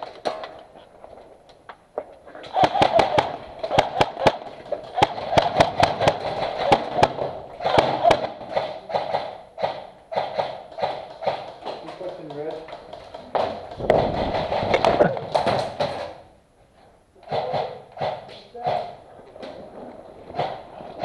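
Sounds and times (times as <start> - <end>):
airsoft guns firing: 2.5 - 16.3, 17.2 - 19.0, 20.2 - 21.0.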